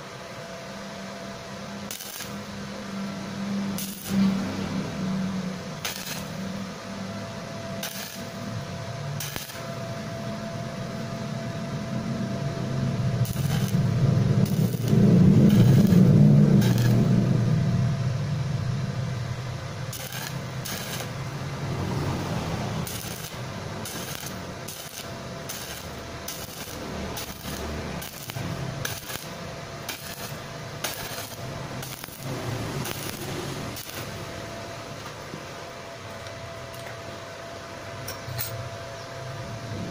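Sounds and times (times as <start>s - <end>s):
welding arc hiss: 1.0s - 10.4s, 12.8s - 17.6s, 18.9s - 35.6s
low rumble: 2.4s - 34.8s, 39.4s - 39.9s.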